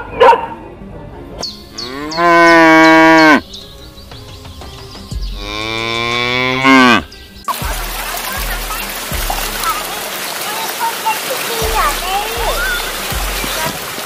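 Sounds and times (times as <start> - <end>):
cow mooing: 1.8 - 3.4, 5.4 - 7.1.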